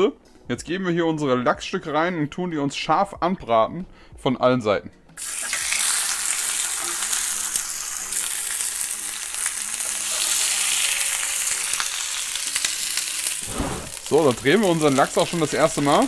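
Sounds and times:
fish sizzling in a pan: 0:05.2 - 0:16.0.

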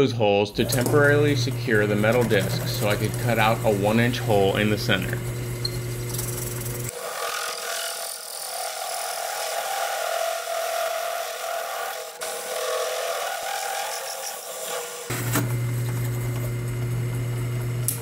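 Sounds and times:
hole saw grinding through metal: 0:00.6 - 0:15.1.

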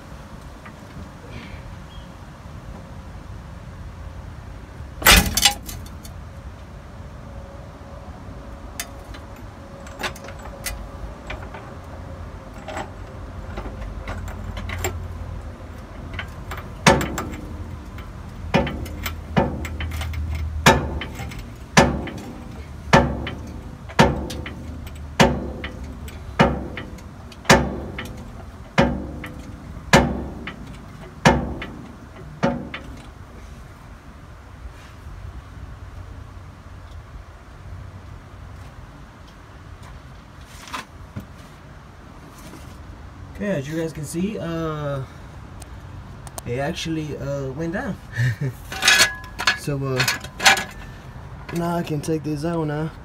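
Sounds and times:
sharp metal knocks ringing: 0:05.0 - 0:06.1, 0:12.6 - 0:33.2, 0:48.7 - 0:51.8.

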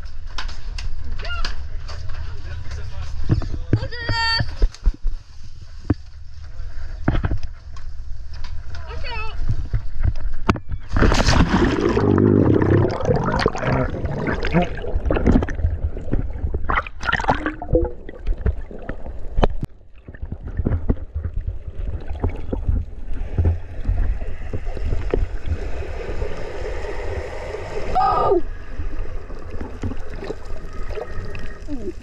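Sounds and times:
muffled underwater rumble: 0:09.5 - 0:32.0
water splashing and gurgling: 0:10.9 - 0:32.0.

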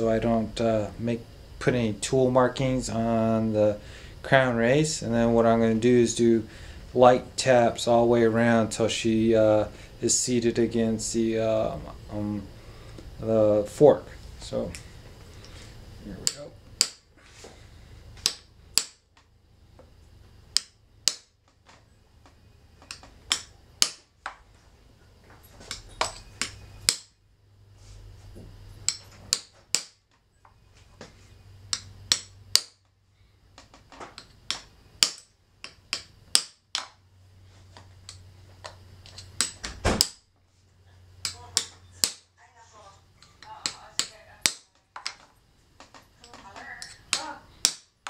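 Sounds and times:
tool tapping metal: 0:16.2 - 0:17.1, 0:18.2 - 0:19.3, 0:20.5 - 0:21.8, 0:22.8 - 0:24.4, 0:25.6 - 0:27.2, 0:28.8 - 0:30.2, 0:31.7 - 0:32.9, 0:33.6 - 0:37.0, 0:37.9 - 0:40.3, 0:41.2 - 0:42.3, 0:43.2 - 0:48.0.

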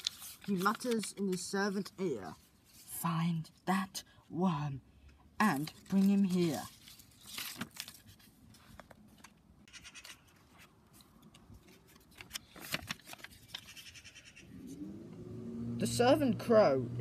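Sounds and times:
paper puppet crackling and tapping: 0:00.0 - 0:02.0, 0:05.4 - 0:14.0.

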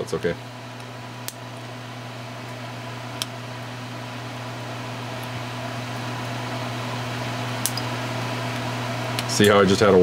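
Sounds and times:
low machine hum: 0:00.0 - 0:10.0.

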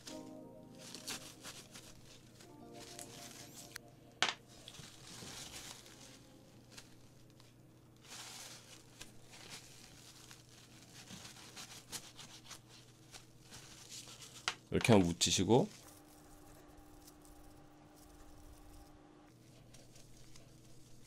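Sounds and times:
paper towel crinkling: 0:00.0 - 0:03.8, 0:04.4 - 0:15.0.

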